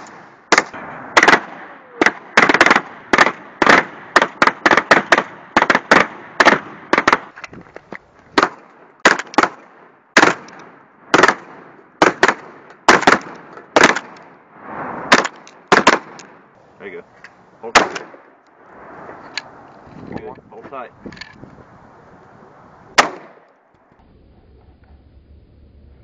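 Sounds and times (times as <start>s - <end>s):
shotgun blasts with echo: 0.0s - 7.4s, 8.4s - 14.3s, 15.1s - 16.4s, 17.7s - 18.3s, 23.0s - 23.4s.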